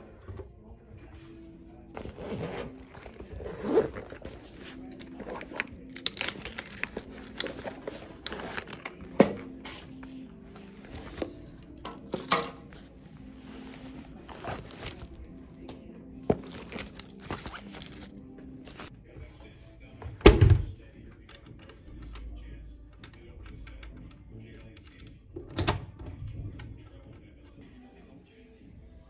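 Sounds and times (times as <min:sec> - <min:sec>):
fabric rustling: 0:01.1 - 0:11.8, 0:12.7 - 0:18.9
zipper opening: 0:02.0 - 0:11.3, 0:13.2 - 0:15.6, 0:16.3 - 0:18.9.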